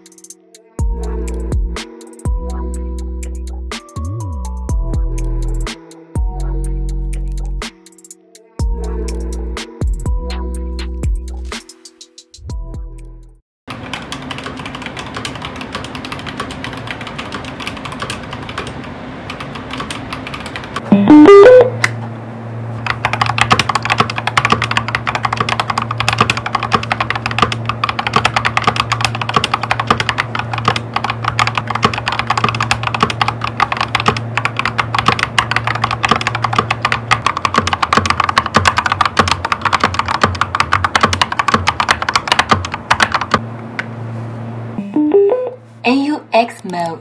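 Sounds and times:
mechanical keyboard typing: 13.7s - 21.6s, 22.8s - 43.4s.

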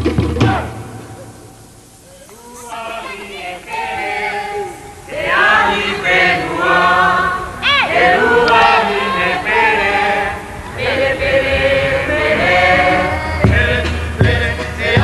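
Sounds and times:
drum strikes: 0.0s - 1.7s, 13.4s - 15.0s
group chant-like choral singing: 0.3s - 15.0s.

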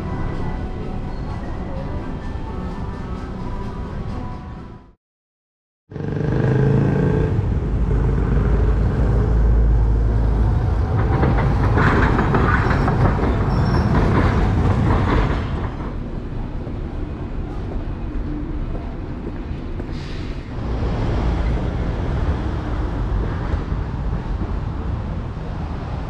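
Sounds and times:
road traffic rumble: 5.9s - 26.0s
tram wheels clattering on rails: 7.8s - 26.0s.

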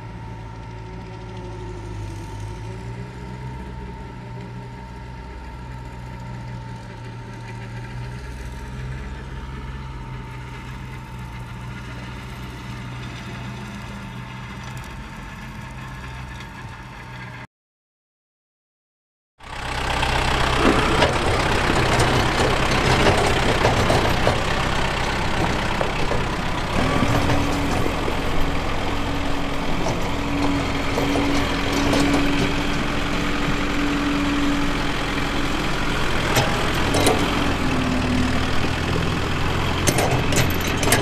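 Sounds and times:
tractor engine running: 0.0s - 17.4s, 19.4s - 41.0s.

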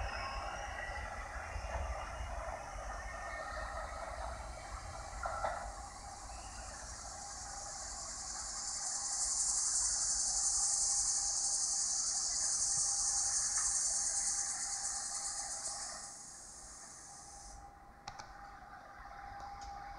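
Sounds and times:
insects buzzing: 2.9s - 17.7s.

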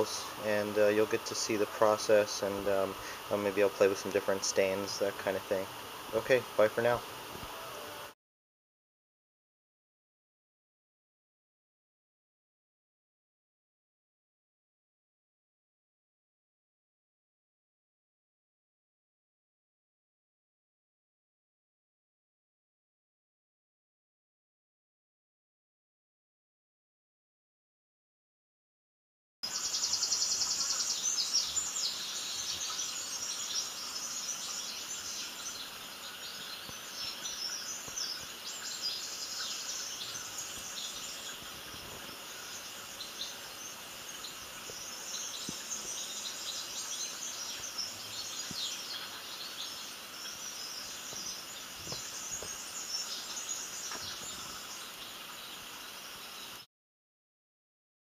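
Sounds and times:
small birds chirping: 0.0s - 7.6s, 29.4s - 56.7s.

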